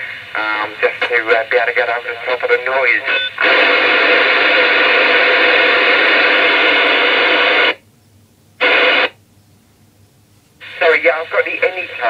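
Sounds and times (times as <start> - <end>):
radio static: 0.4 - 7.8, 8.6 - 9.2, 10.6 - 12.0.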